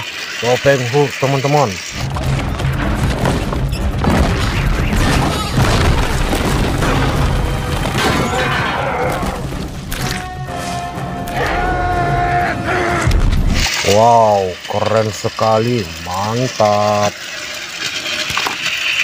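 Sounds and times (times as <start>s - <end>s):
dramatic film music: 1.9s - 14.0s
heavy booms: 2.0s - 8.5s
debris crashing and smashing: 2.0s - 10.2s, 13.0s - 14.2s.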